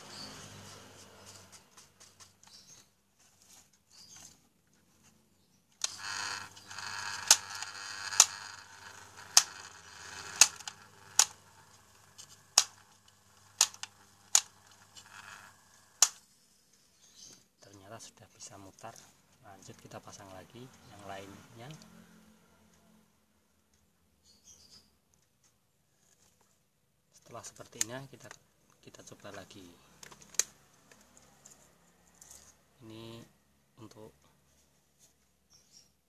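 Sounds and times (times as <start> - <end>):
electric fan motor humming: 5.8 - 16.2
sharp clicks: 5.8 - 16.2.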